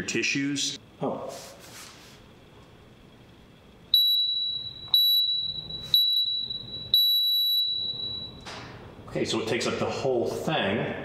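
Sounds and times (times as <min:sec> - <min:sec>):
timer beeping: 0:04.0 - 0:08.4.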